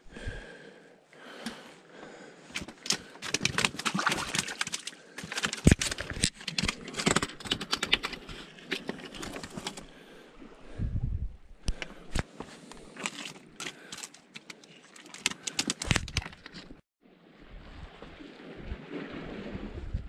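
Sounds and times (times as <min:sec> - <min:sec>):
fish flapping on wet rock: 0:02.5 - 0:09.8, 0:12.9 - 0:16.6.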